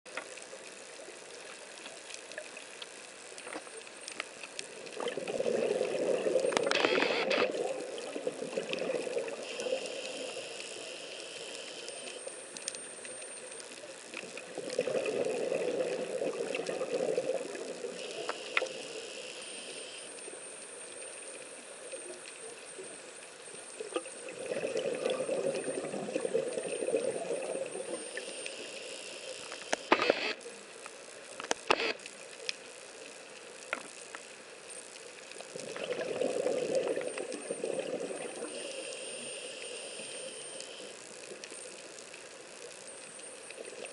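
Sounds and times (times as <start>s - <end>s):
faint clicks and hiss: 0.1s - 43.9s
diver exhaling bubbles underwater: 5.0s - 6.7s, 14.6s - 17.9s, 24.2s - 27.9s, 35.6s - 38.7s.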